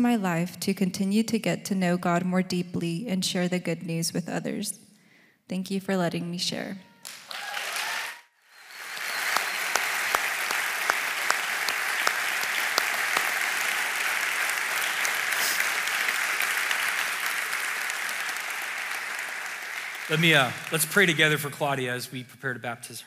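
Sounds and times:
congregation applauding: 7.0 - 22.0.

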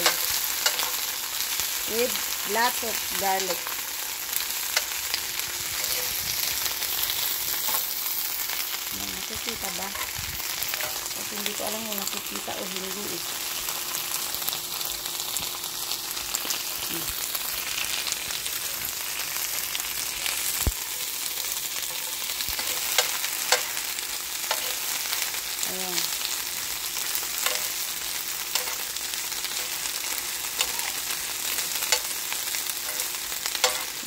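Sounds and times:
vegetables sizzling in a grill pan: 0.0 - 34.0
metal fork scraping pan: 32.8 - 34.0.

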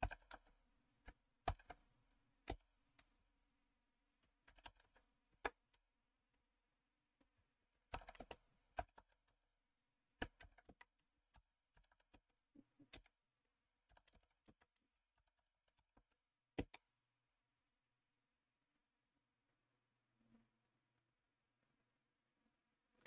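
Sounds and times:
typing on computer keyboard: 7.9 - 9.1.

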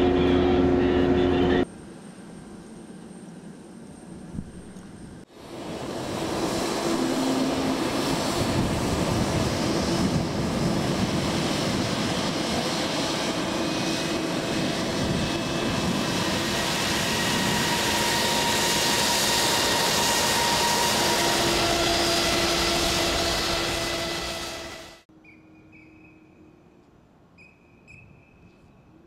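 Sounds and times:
jet engines rushing: 0.0 - 25.1
high whining tones: 5.6 - 25.0.

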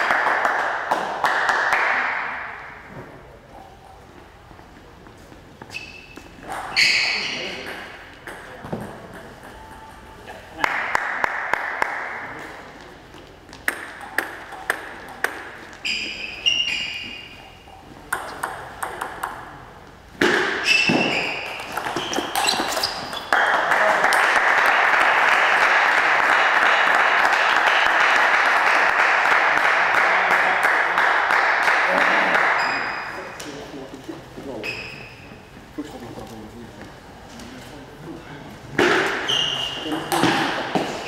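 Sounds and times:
table tennis ball bouncing: 6.4 - 10.2, 13.5 - 17.3, 18.1 - 23.6, 38.8 - 41.0
ball clicking on bats: 13.5 - 15.8, 18.1 - 19.5, 21.4 - 23.5.

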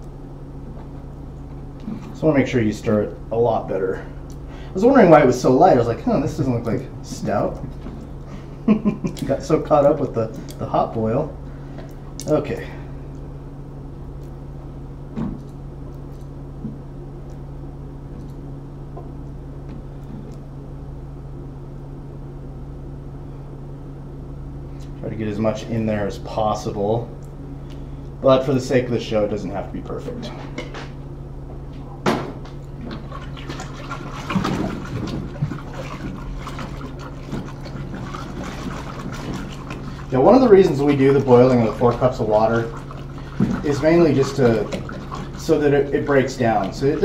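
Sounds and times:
steady low hum: 0.0 - 47.0
liquid sloshing in a pot: 32.4 - 47.0.

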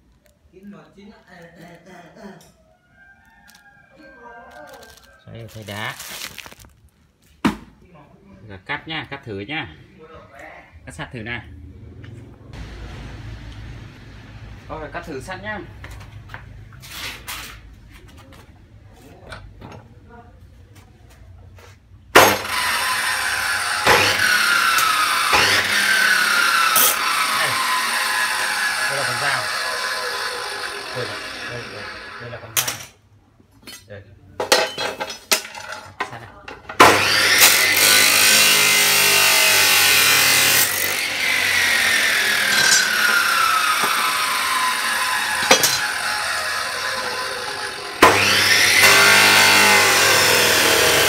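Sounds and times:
cut-off saw grinding steel: 22.2 - 32.6, 36.8 - 51.0.

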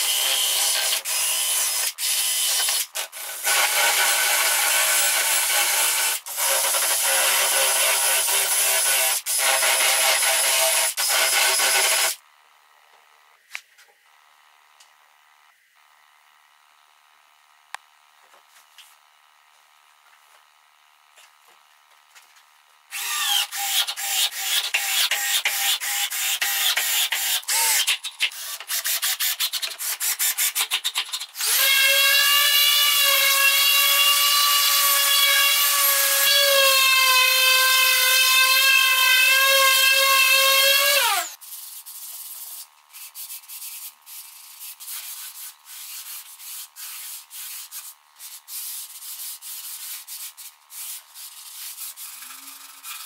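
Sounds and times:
scratchy sanding strokes on wood: 41.4 - 53.0.

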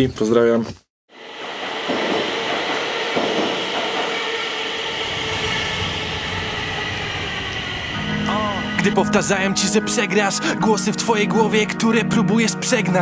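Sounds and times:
metro train rumble and hiss: 1.1 - 10.6
faint even whine: 4.3 - 9.3.

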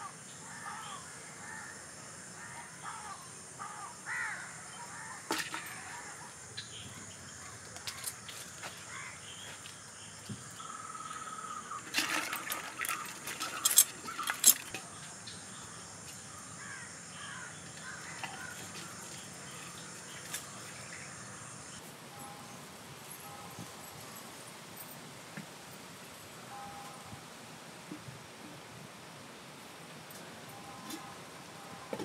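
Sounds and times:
high insect drone: 0.0 - 27.8, 28.7 - 32.0
crows cawing: 2.4 - 6.4, 7.4 - 9.2, 10.6 - 14.9, 15.6 - 21.5
crabs clicking in bamboo basket: 11.8 - 14.9.

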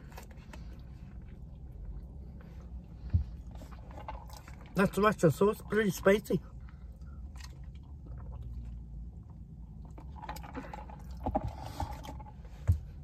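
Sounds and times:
low rumble in car cabin: 0.0 - 13.0.

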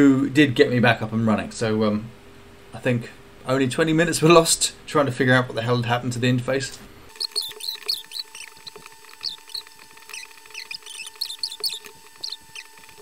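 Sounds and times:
faint electrical hum: 0.0 - 13.0
mouse and keyboard clicking: 7.1 - 13.0.

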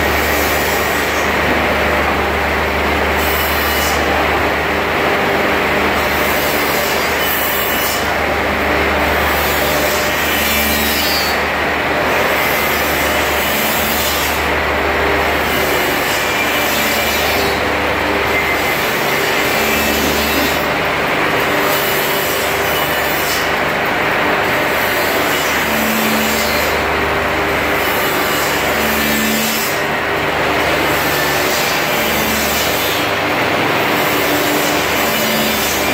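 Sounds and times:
loud steady machine noise: 0.0 - 35.9
hissing wood cutting: 12.1 - 26.8.

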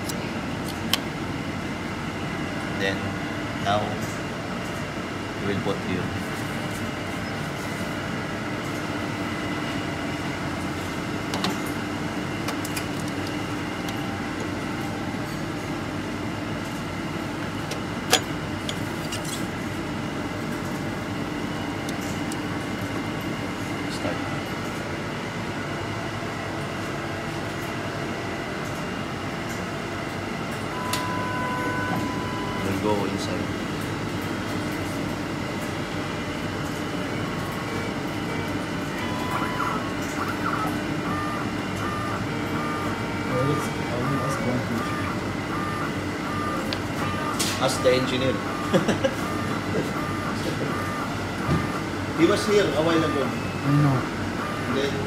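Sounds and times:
laboratory analyzer humming: 0.0 - 55.0
electronic beep: 39.0 - 42.9, 43.5 - 51.8.

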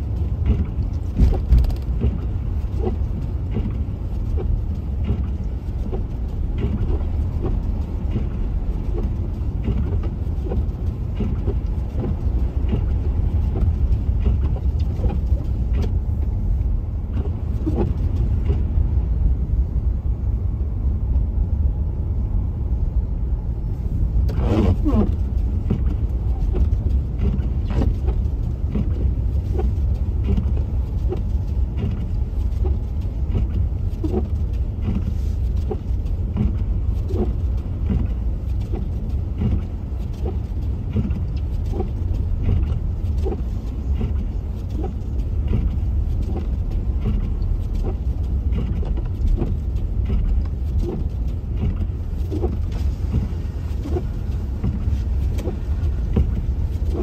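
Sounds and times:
road rumble inside car: 0.0 - 57.0
small knocks and ticks: 25.4 - 57.0.

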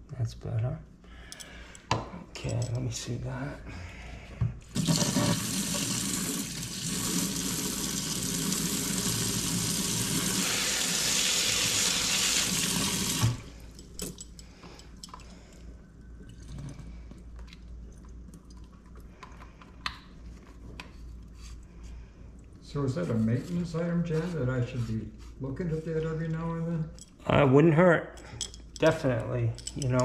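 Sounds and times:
faucet running into sink: 4.8 - 13.5
faint clinks: 13.6 - 15.8, 26.9 - 27.3, 28.1 - 30.0.

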